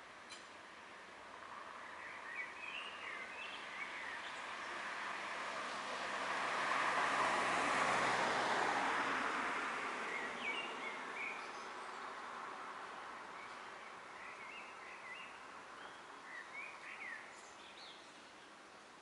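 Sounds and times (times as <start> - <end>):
vehicle passing on street: 4.4 - 11.2.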